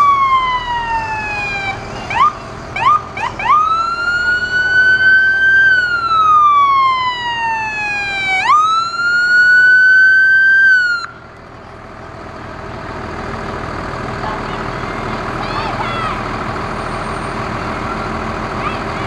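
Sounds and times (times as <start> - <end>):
fire engine siren wailing: 0.0 - 11.3
fire truck engine running: 0.0 - 19.0.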